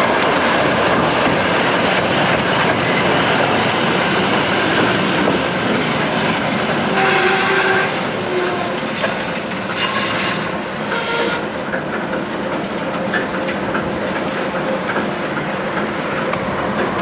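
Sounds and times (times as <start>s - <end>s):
diesel locomotive engine rumbling: 0.0s - 17.0s
wheels clicking over rails: 0.2s - 17.0s
wheel squeals: 4.3s - 11.5s.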